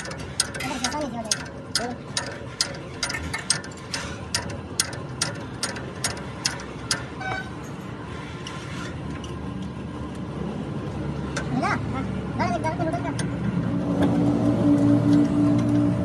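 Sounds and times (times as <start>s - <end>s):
ratchet wrench clicking: 0.0s - 7.2s.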